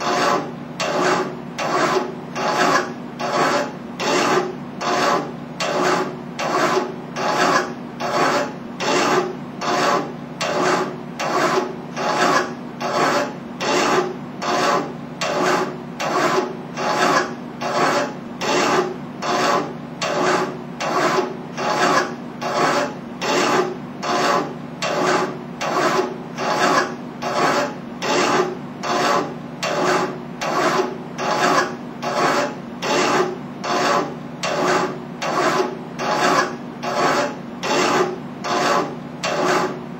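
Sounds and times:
hand file rasping on metal: 0.0 - 39.8.

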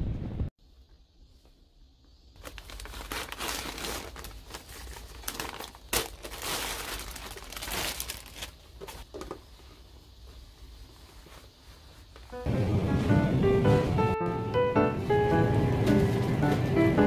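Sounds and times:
wrapper crinkling and rustling: 2.4 - 9.1.

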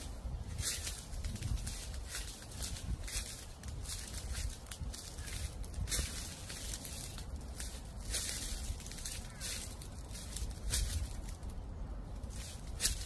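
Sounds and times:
footsteps crunching dry leaves: 0.0 - 13.0
low wind rumble: 0.0 - 13.0.

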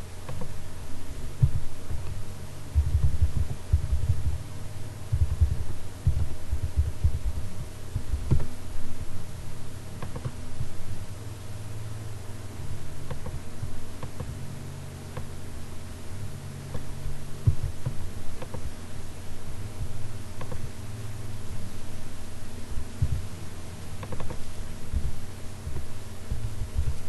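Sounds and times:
low steady hum: 0.0 - 27.0
dull thumps: 1.4 - 2.2, 2.8 - 4.4, 5.1 - 8.6, 22.8 - 23.3, 24.0 - 27.0
faint clicks: 10.0 - 10.4, 13.0 - 13.4, 20.4 - 20.8, 24.0 - 25.1.

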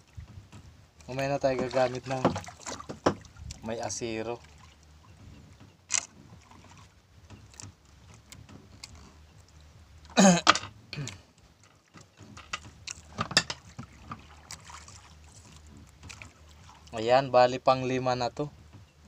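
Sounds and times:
low steady hum: 0.0 - 19.0
sharp knocks: 1.5 - 3.3.

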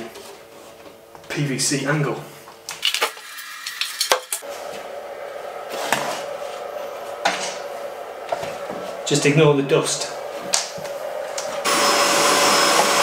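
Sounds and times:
steady hum: 4.4 - 13.0.

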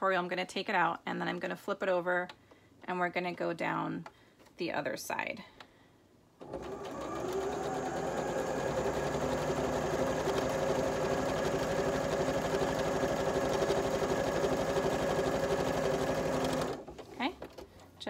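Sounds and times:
electric sewing machine stitching: 6.4 - 17.0.

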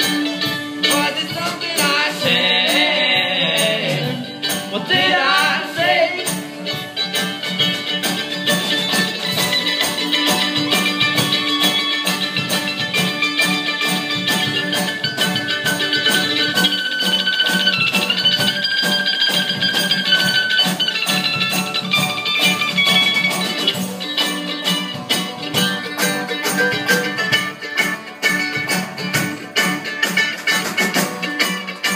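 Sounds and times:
acoustic guitar: 0.0 - 31.9
banjo: 0.0 - 31.9
mandolin: 0.0 - 31.9.

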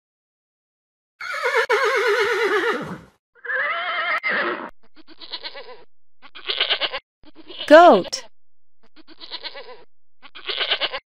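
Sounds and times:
horse whinnying: 1.2 - 5.8.

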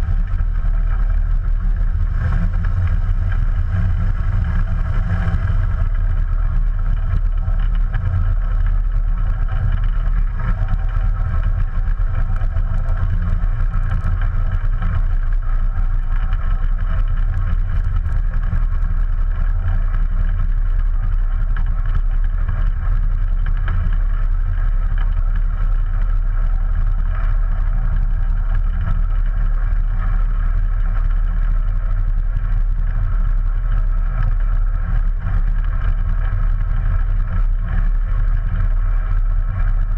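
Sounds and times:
light aircraft engine and propeller: 0.0 - 39.9.

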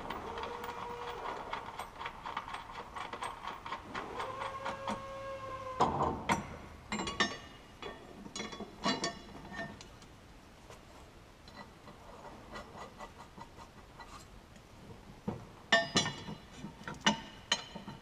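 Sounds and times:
metal brackets and bolts clinking: 0.0 - 5.0, 5.8 - 10.0, 15.7 - 18.0.

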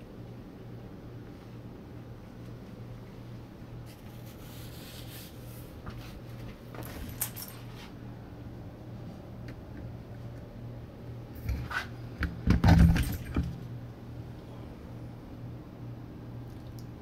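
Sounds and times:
low electrical hum: 0.0 - 17.0
rustling handling noises: 3.8 - 8.0
metallic jingle: 7.0 - 7.7.

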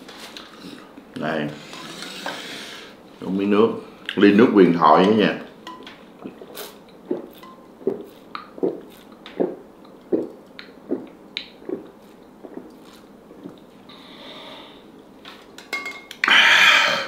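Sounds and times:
person gulping through a straw: 6.2 - 13.7.

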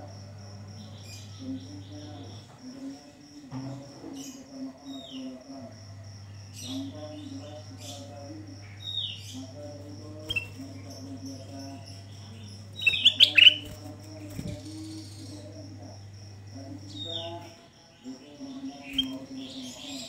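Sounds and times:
bulbul whistled calls: 12.8 - 13.7.

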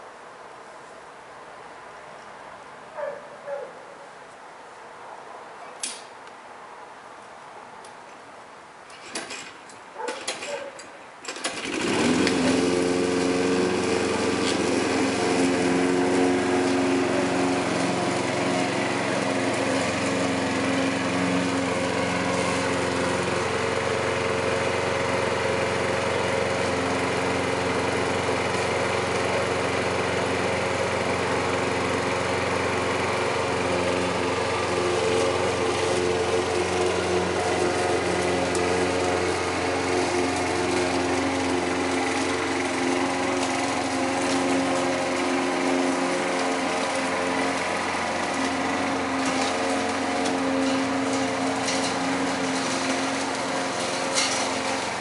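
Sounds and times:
lawn mower engine: 5.8 - 55.0
short clattering noises: 8.9 - 11.6.

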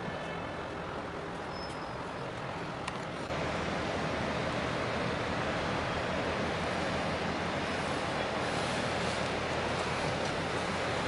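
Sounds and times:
wind: 0.0 - 11.0
water: 0.4 - 11.0
low engine drone: 3.2 - 11.0.

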